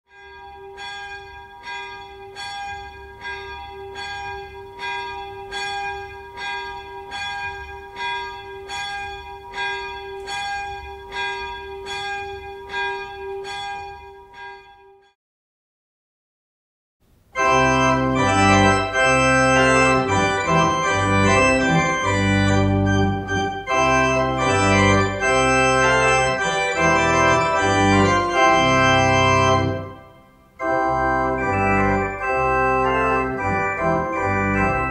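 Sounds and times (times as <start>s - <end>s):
pipe organ playing loud chords: 17.4s - 34.9s.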